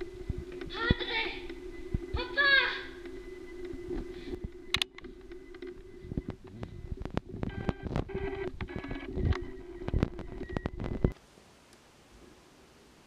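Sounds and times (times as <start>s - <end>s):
low hum: 0.0s - 11.2s
telephone keypad beeps: 1.4s - 11.2s
clicks: 3.0s - 11.8s.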